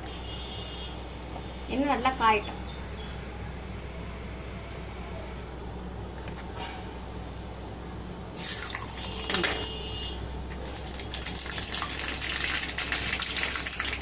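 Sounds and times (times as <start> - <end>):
hot oil sizzling and popping: 10.5 - 14.0.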